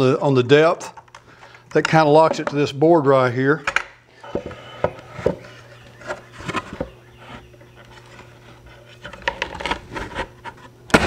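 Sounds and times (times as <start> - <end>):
steady low hum: 0.0 - 11.0
wood rubbing and scraping: 4.1 - 10.8.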